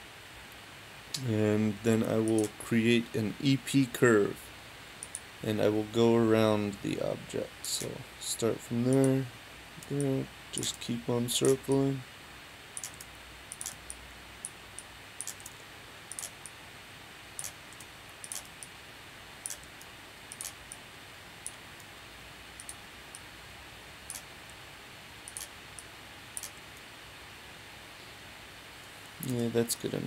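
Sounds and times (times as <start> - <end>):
faint steady hiss: 0.0 - 30.0
computer mouse clicking: 2.3 - 2.6, 5.0 - 5.3, 12.8 - 16.6, 17.4 - 18.7, 19.4 - 20.8, 22.6 - 23.2, 24.1 - 24.3, 25.2 - 26.6.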